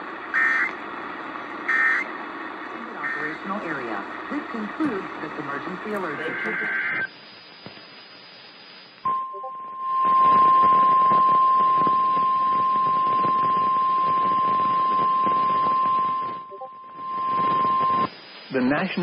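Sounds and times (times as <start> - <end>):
radio static: 0.0 - 9.2, 10.0 - 19.0
steady high alarm tone: 2.9 - 4.0.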